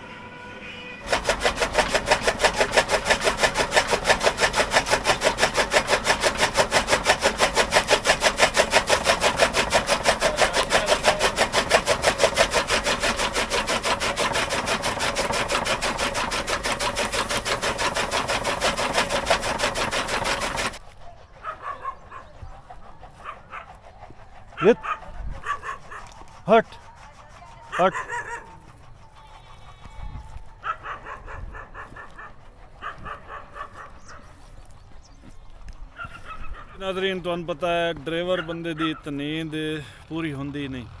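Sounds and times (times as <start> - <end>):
chaff cutter chopping fodder: 1.0 - 21.0, 24.4 - 29.0.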